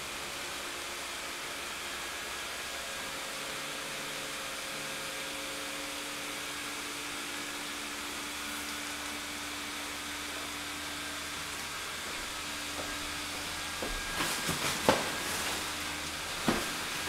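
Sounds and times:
blower fans whooshing: 4.0 - 17.0.

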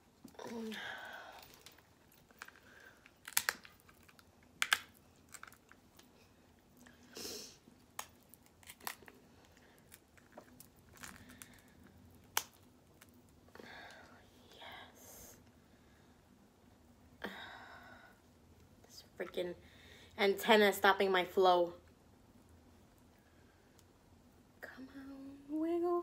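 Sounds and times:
crab shells cracking: 1.4 - 6.1, 7.9 - 13.3.

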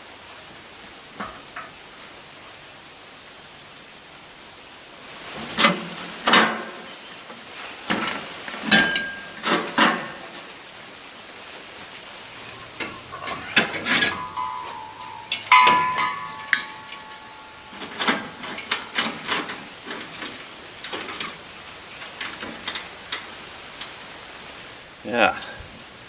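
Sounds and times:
metal cylinder clanking: 12.4 - 20.2.

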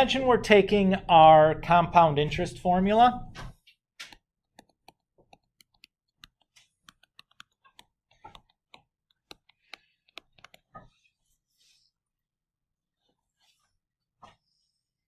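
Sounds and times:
stylus tapping touchscreen: 4.0 - 10.9.

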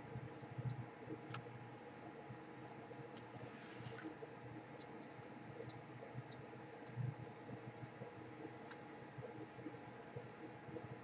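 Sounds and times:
steady low hum: 0.0 - 11.0
light clicks of small parts: 0.6 - 1.5
soft scrape: 3.4 - 4.1.

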